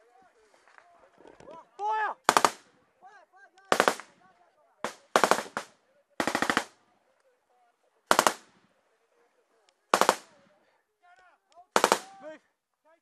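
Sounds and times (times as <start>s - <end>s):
automatic gunfire bursts: 2.3s - 2.6s, 3.7s - 4.1s, 4.8s - 6.8s, 8.1s - 8.5s, 9.9s - 10.4s, 11.8s - 12.2s.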